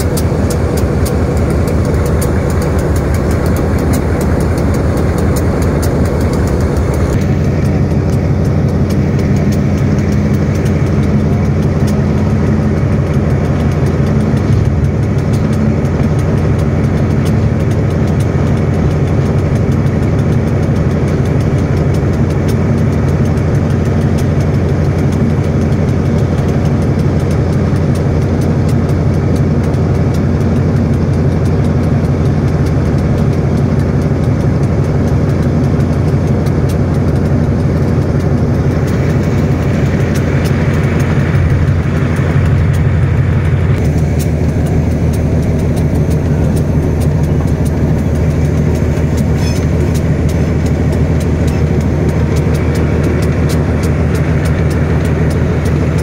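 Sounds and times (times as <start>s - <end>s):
diesel locomotive engine drone: 0.0s - 56.0s.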